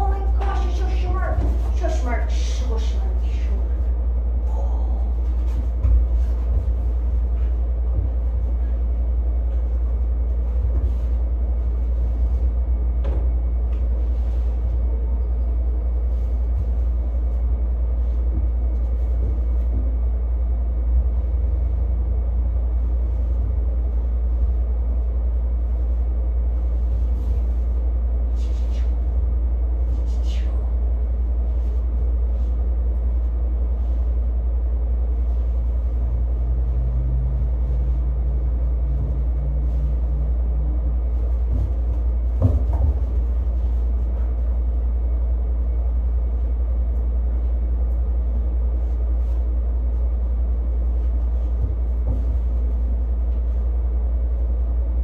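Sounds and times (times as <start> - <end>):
low hum: 0.0 - 55.0.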